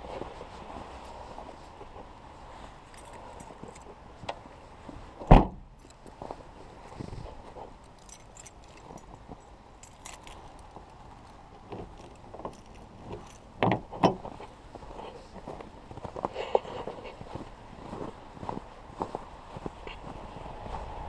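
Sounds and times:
keys jingling: 2.8 - 3.9, 5.8 - 6.2, 7.6 - 14.0
car door thump: 5.3 - 5.6.

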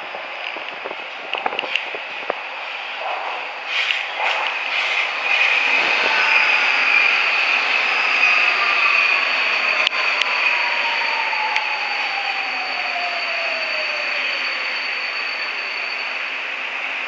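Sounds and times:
rush of wheel and air noise: 0.0 - 17.0
train whine falling in pitch: 5.0 - 17.0.

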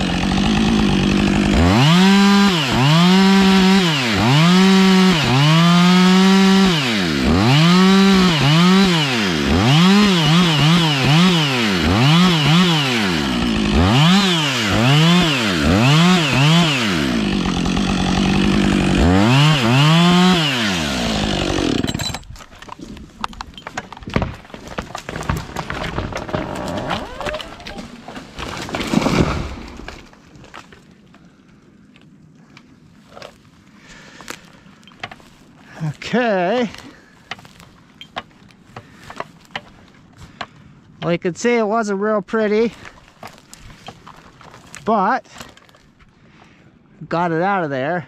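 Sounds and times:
chainsaw cutting wood: 0.0 - 22.4, 24.2 - 30.0
wood crackles and knocks: 21.7 - 31.2, 34.2 - 35.5, 36.7 - 41.1, 42.8 - 46.1.

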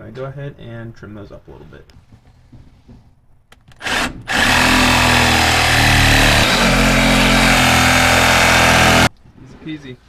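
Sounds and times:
cordless power tool cutting rubber: 3.7 - 9.1.

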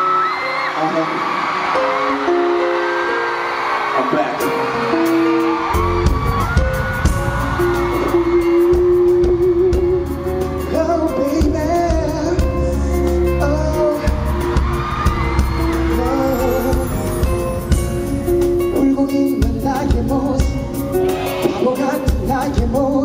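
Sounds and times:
person singing with vibrato: 7.6 - 23.0.

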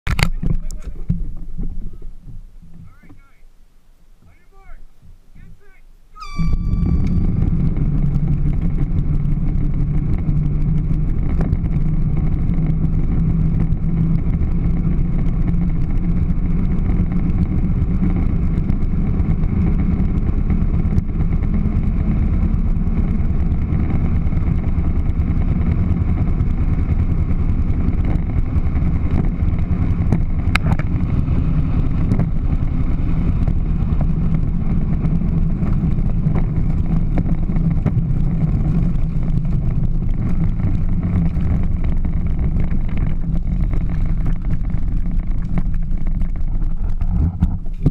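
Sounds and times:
electric motor hum: 6.2 - 21.9
toy car wheels rumbling: 6.2 - 47.9.

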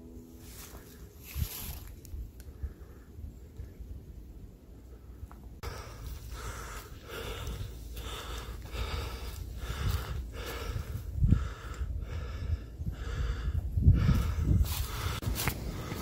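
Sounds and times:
person breathing hard: 4.9 - 16.0.

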